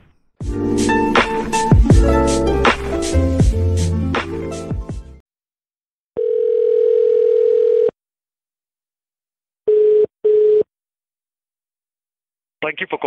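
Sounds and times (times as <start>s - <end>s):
telephone ringing tone: 6.2s - 8.0s, 9.7s - 10.7s.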